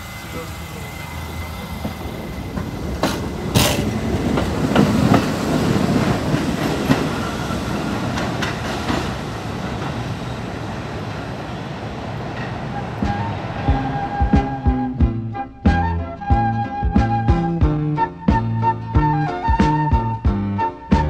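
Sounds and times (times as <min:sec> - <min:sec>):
train rumble: 0:00.0 - 0:21.0
train wheels clacking over rail joints: 0:01.7 - 0:10.6.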